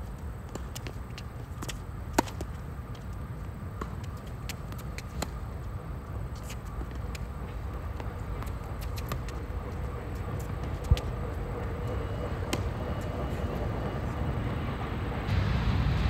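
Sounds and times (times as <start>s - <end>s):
racket hitting tennis ball: 0.4s - 2.9s, 3.7s - 5.6s, 6.3s - 11.8s, 12.4s - 13.4s
tennis ball bounces: 0.4s - 3.1s, 3.7s - 5.7s, 6.3s - 13.9s
distant tennis shots: 0.5s - 5.7s, 6.3s - 13.9s
low background rumble: 7.2s - 16.0s.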